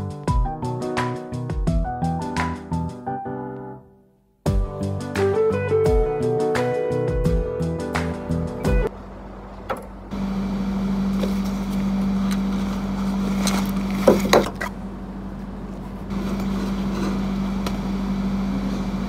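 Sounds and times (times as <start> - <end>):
low machine hum: 8.6 - 19.0.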